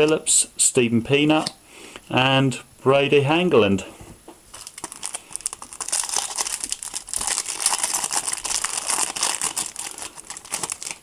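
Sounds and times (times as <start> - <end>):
foil wrapper crinkling and tearing: 4.5 - 11.0.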